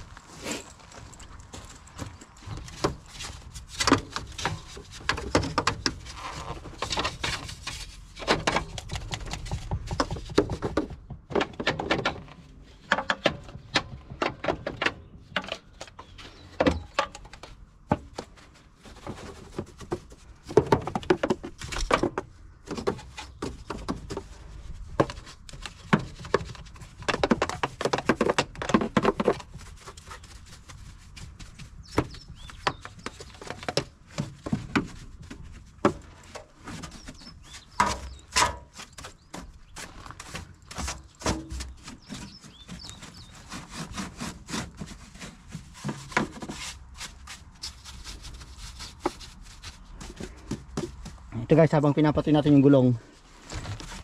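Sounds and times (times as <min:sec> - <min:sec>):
objects knocking and clattering: 0:01.8 - 0:29.6.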